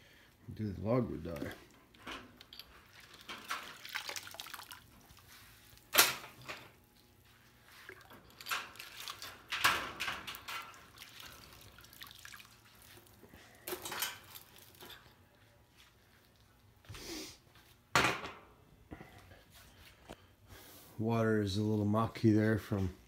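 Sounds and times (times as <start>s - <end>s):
water dripping and splashing into tub: 2.8s - 6.0s, 7.7s - 13.4s.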